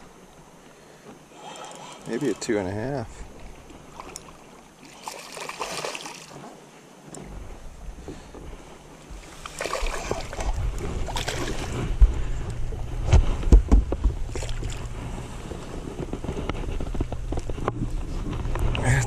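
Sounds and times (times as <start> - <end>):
fish splashing: 1.3 - 6.4, 9.3 - 11.9
knocks and clatter on boat: 6.3 - 19.0
wind rumbling on microphone: 7.1 - 19.0.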